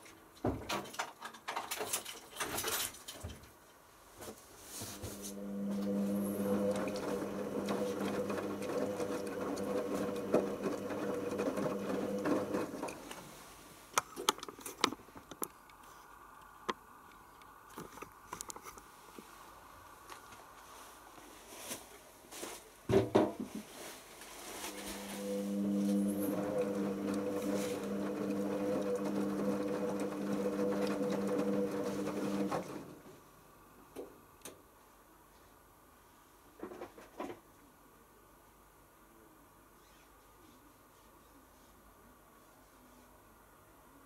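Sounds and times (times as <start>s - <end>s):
washing machine motor humming: 4.8s - 13.3s, 24.6s - 33.1s.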